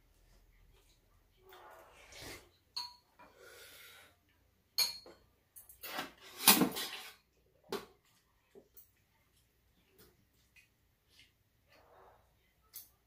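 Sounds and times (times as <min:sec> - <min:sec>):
spoons and chopsticks clinking bowls: 0:02.7 - 0:03.1, 0:04.8 - 0:06.9.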